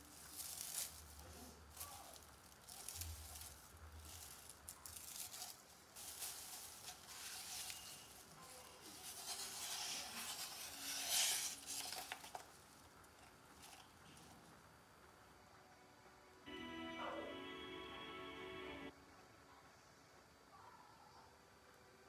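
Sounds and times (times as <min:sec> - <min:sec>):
knife blade scraping: 0:08.9 - 0:12.4.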